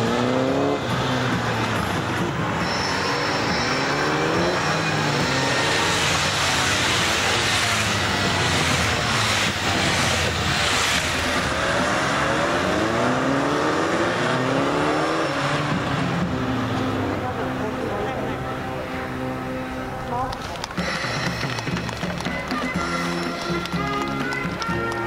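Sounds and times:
motorcycle engines revving: 0.0 - 25.0.

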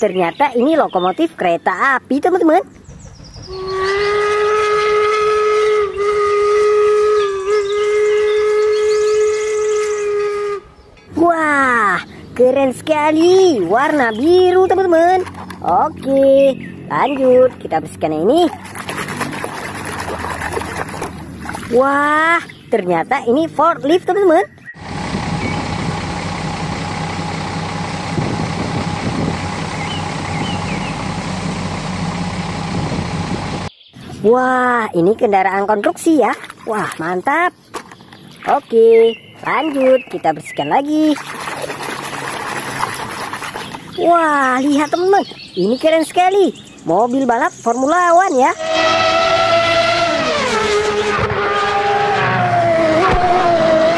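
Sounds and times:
heavy diesel engine running: 2.4 - 22.7, 24.8 - 33.7
steam locomotive whistle: 3.5 - 10.8, 48.5 - 53.9.

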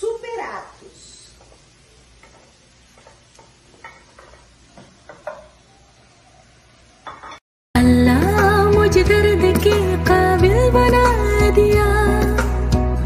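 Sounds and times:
plate set down clatter: 2.2 - 5.6, 7.0 - 7.4.

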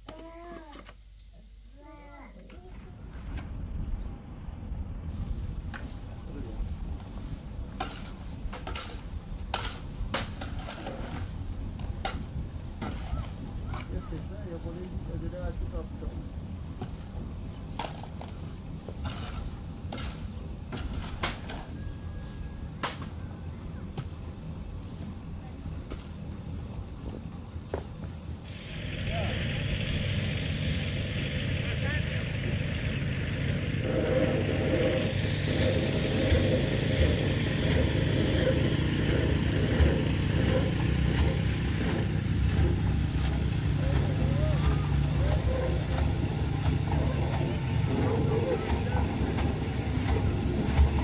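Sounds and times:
low wind rumble: 2.8 - 17.8, 28.3 - 51.0.

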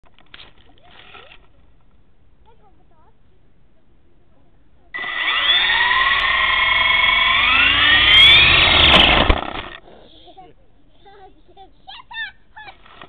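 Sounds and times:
rc helicopter motor whine: 5.0 - 9.8.

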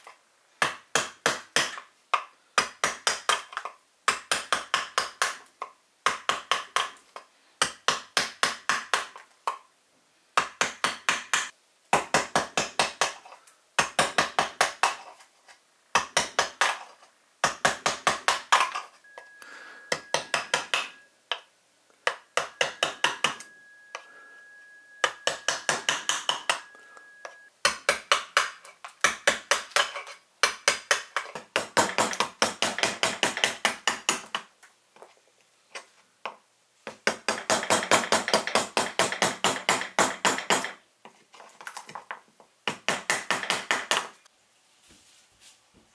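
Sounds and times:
carving gouge cutting wood: 25.2 - 26.6.

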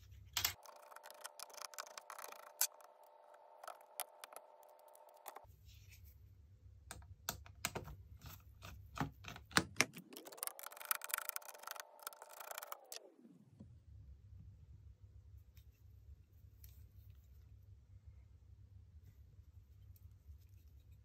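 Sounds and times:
thin electronic whine: 0.4 - 5.5, 9.9 - 14.0.

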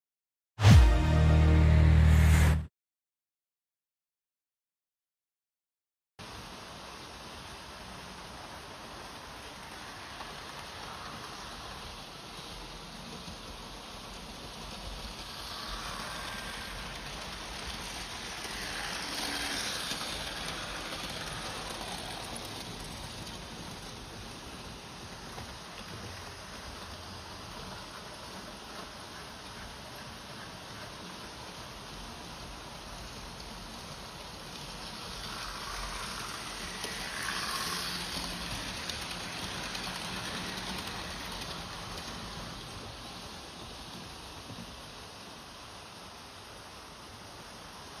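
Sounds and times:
model trains rattling on metal track: 8.9 - 45.0.

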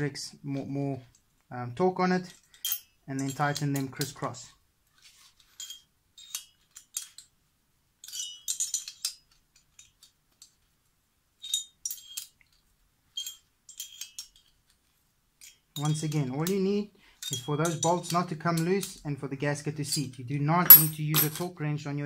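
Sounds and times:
metal tools clicking and clinking: 2.3 - 4.2, 5.4 - 7.3, 8.0 - 10.6, 13.1 - 14.6, 17.2 - 19.0, 20.7 - 21.5.

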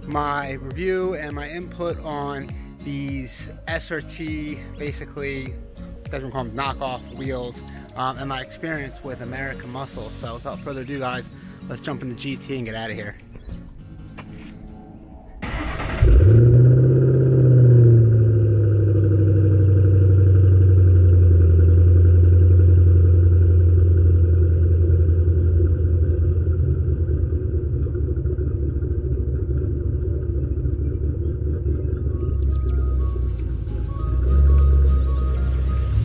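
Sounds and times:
car engine idle rumble: 15.4 - 36.0.

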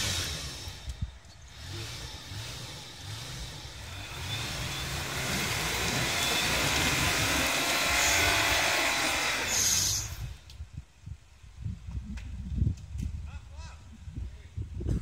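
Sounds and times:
car engine revving: 0.0 - 10.3
tyres spinning in snow: 0.0 - 10.4.

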